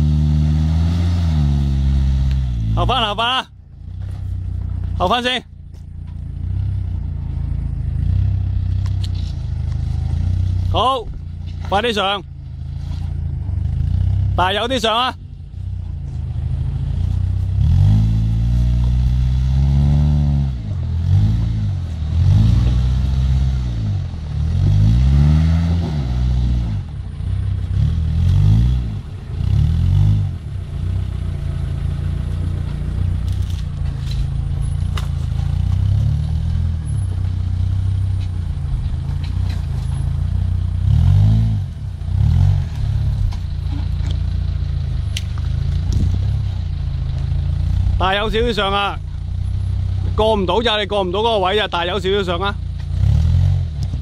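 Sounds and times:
engine revving under load: 0:00.0 - 0:03.2, 0:16.1 - 0:54.0.

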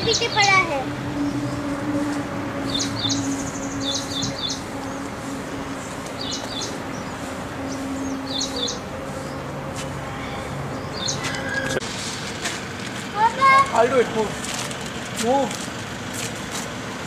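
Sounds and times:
small birds chirping: 0:00.0 - 0:01.8, 0:02.6 - 0:11.8.

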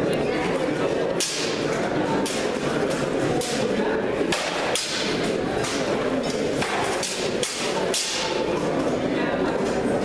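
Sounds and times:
swords clashing on metal: 0:06.6 - 0:08.4.

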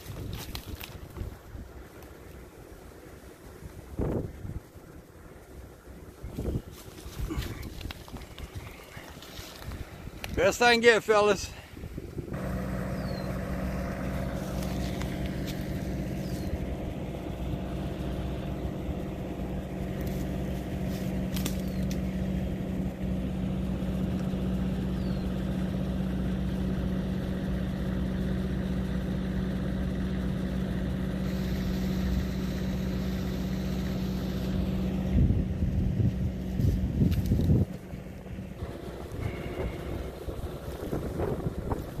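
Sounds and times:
engine idling: 0:00.0 - 0:42.0.

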